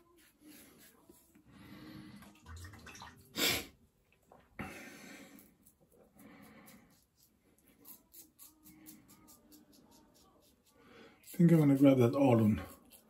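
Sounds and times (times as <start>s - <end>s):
razor scraping stubble: 5.4s - 13.0s.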